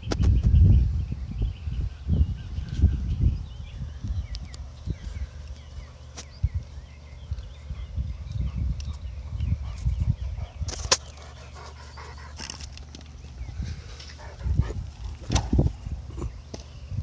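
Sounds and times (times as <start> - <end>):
dog panting: 9.6 - 12.5, 14.1 - 14.8
low thumping rumble: 13.3 - 17.0.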